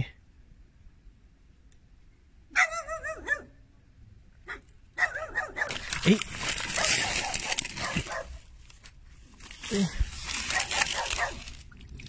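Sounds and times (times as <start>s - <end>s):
dog barking: 2.5s - 3.6s, 4.4s - 5.9s, 6.7s - 8.4s, 10.5s - 11.4s
water splashing: 9.4s - 12.0s.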